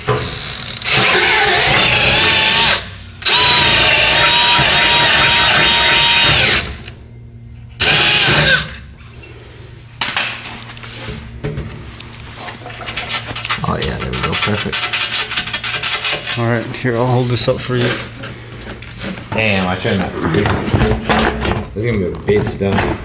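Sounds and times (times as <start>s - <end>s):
cordless drill whining: 0.3s - 6.9s, 7.8s - 8.8s.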